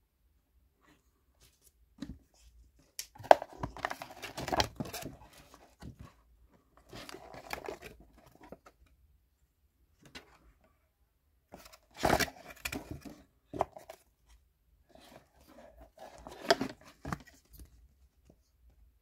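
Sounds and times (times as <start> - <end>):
cardboard and paper rustling: 1.4 - 8.8, 11.5 - 14.1, 14.9 - 18.4.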